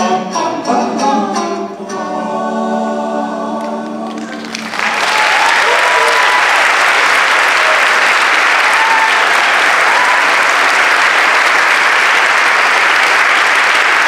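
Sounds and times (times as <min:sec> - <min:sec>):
audience applauding: 0:04.0 - 0:14.0
people cheering: 0:04.2 - 0:14.0.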